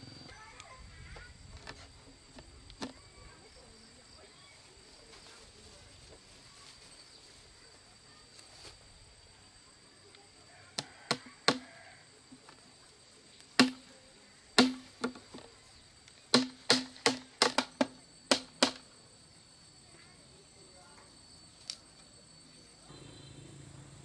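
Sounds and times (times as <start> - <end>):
hammer hitting nail into wood: 14.6 - 15.2, 16.4 - 18.8.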